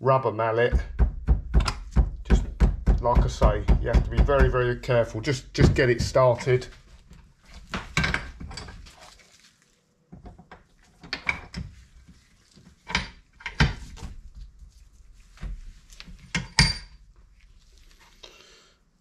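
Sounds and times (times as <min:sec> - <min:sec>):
rubber mallet knocking on metal: 0:00.7 - 0:04.7.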